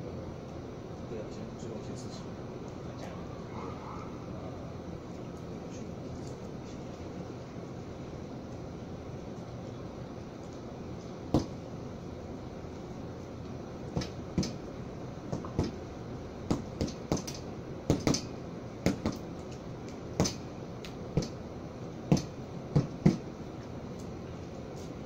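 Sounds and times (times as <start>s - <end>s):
low background hum: 0.0s - 25.0s
sharp knocks: 11.3s - 11.6s, 15.3s - 15.8s, 16.5s - 18.3s, 22.1s - 23.2s.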